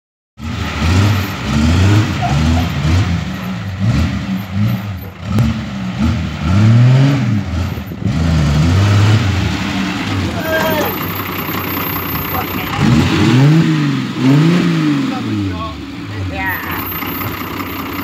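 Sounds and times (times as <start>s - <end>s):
car engine revving: 0.4s - 18.0s.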